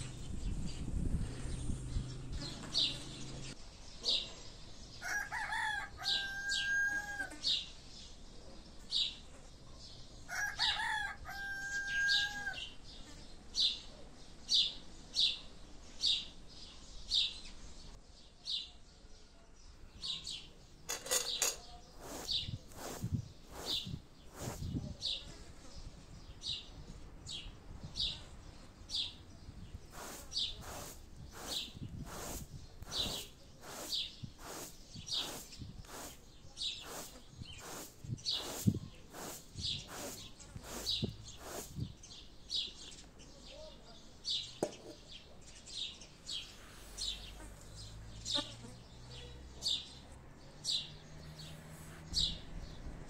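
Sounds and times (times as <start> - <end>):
songbird chirping: 0.0 - 53.0
rooster crowing: 5.0 - 7.4, 10.3 - 12.7.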